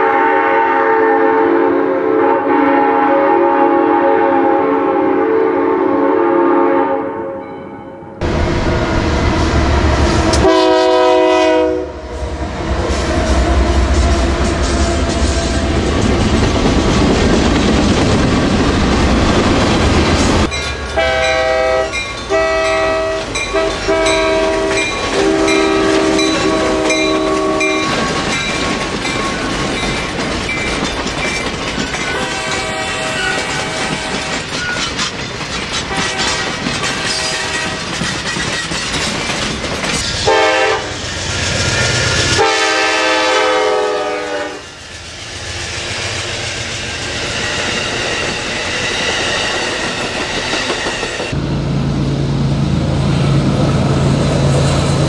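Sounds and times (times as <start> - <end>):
locomotive air horn blasts: 0.0 - 7.4, 10.3 - 12.3, 21.0 - 28.1, 32.1 - 34.4, 35.9 - 37.8, 40.2 - 41.0, 42.4 - 44.7
train rumbling on rails: 8.2 - 55.0.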